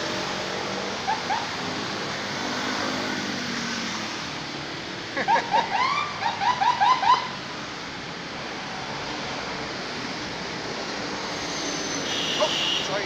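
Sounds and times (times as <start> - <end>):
outdoor background noise: 0.0 - 13.0
high-pitched laughter: 5.1 - 5.9.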